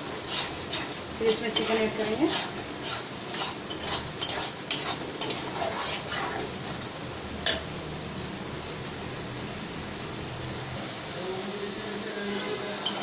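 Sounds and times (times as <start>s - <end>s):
spatula scraping and tapping pan: 0.0s - 6.8s, 12.8s - 13.0s
paste frying hiss: 0.0s - 6.9s.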